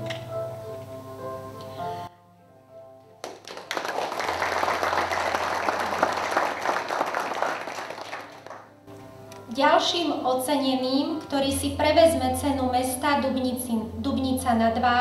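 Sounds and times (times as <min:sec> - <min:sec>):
audience applauding: 0:03.2 - 0:08.7.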